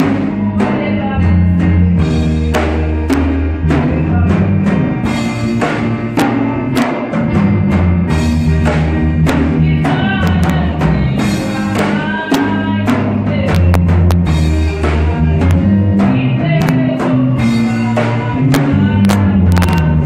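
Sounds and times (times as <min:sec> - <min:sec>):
woman singing into a microphone: 0:00.0 - 0:04.8, 0:09.4 - 0:20.0
band with low bass notes: 0:00.0 - 0:20.0
drum kit: 0:00.0 - 0:20.0.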